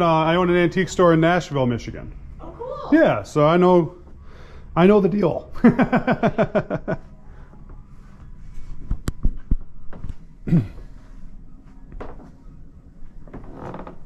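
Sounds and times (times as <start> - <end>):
man laughing: 5.6 - 7.1.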